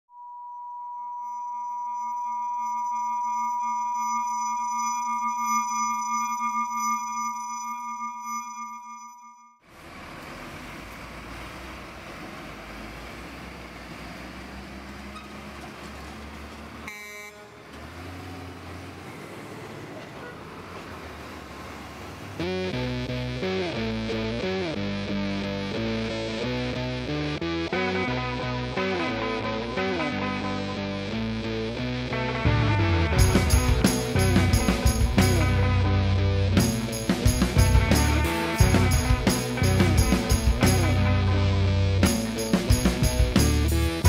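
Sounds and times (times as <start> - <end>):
traffic driving past: 9.7 - 22.8.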